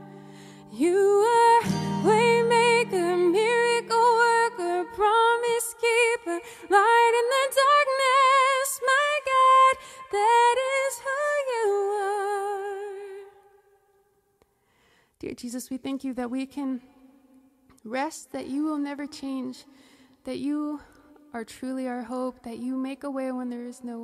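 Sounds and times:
acoustic guitar chord strummed: 0.0s - 4.8s
woman singing: 0.0s - 13.7s, 15.2s - 17.0s, 17.8s - 24.0s.

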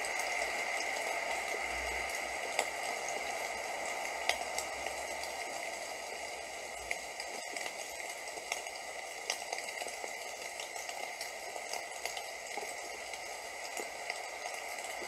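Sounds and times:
rain drops ticking: 0.0s - 15.0s
steady rain hiss: 0.0s - 15.0s.

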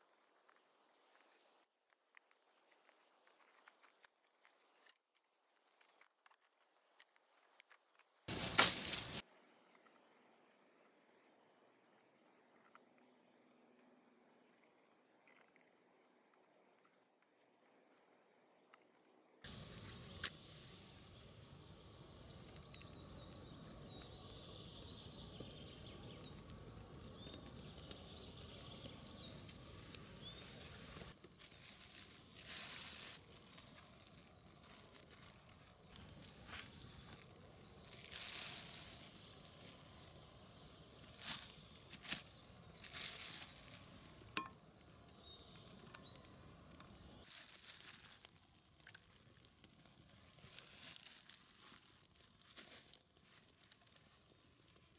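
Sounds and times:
plastic bags rustling: 8.3s - 9.2s, 30.4s - 37.2s, 37.8s - 39.8s, 41.0s - 44.4s, 47.2s - 48.5s, 50.4s - 54.3s
faint bird chirps: 19.5s - 47.3s.

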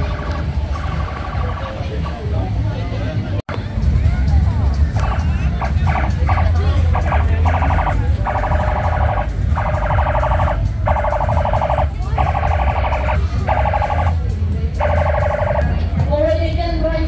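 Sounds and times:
low bass hum: 0.0s - 17.0s
electronic alarm buzzing: 5.9s - 14.2s, 14.8s - 15.7s.

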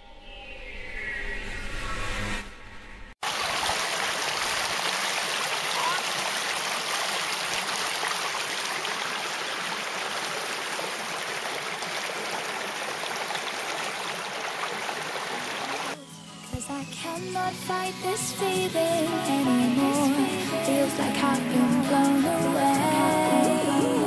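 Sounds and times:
stream rushing over rocks: 3.2s - 16.0s.

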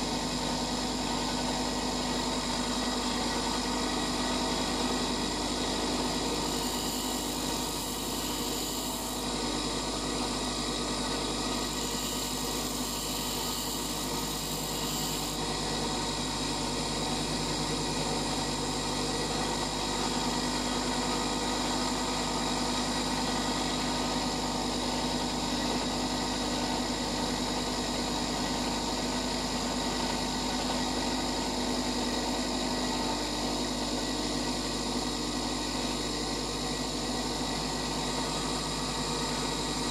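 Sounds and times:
bench grinder humming: 0.0s - 27.0s.

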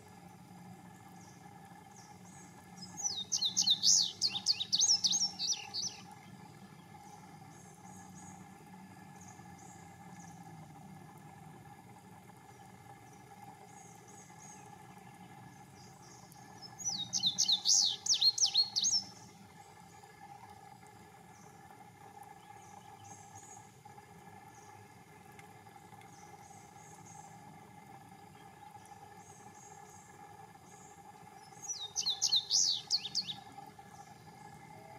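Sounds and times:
faint steady hum: 0.0s - 34.9s
bird song: 1.0s - 10.6s, 12.4s - 20.5s, 22.3s - 23.7s, 28.3s - 34.9s
faint high chirps: 1.9s - 6.1s, 13.7s - 19.3s, 30.7s - 34.9s.

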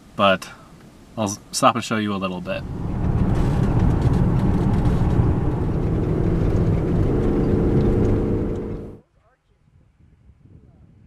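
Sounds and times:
engine and tyre rumble: 1.5s - 9.0s
droning engine tone: 2.3s - 9.0s.

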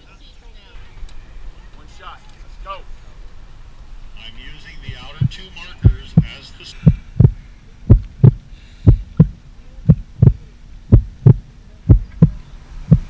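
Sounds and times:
heartbeat double thump: 4.8s - 13.0s.

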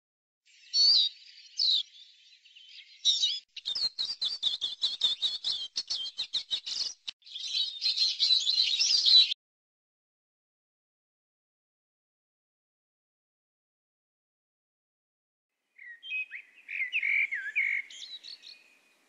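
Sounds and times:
small bird twittering song: 0.5s - 9.4s, 15.7s - 19.0s.

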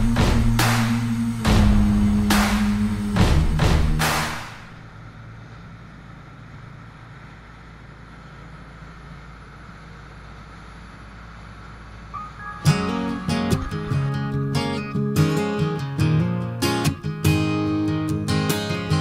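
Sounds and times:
music: 0.0s - 4.5s, 12.2s - 19.0s
boat engine drone: 0.0s - 19.0s.

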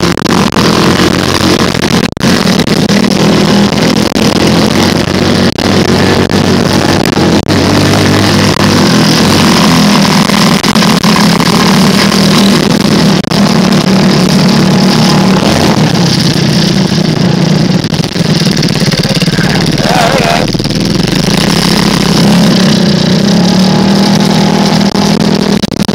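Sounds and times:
vehicle engine running: 0.0s - 25.9s.

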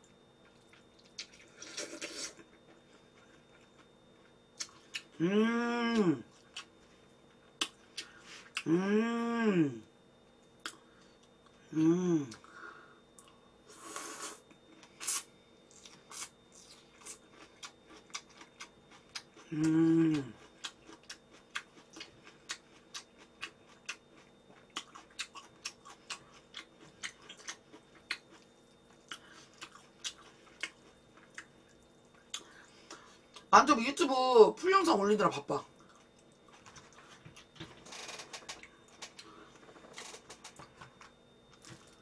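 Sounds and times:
noodle slurp: 1.6s - 2.4s
person humming: 5.2s - 6.2s, 8.6s - 9.9s, 11.7s - 12.5s, 19.5s - 20.4s
chewing mouth clicks and smacks: 20.6s - 32.5s.

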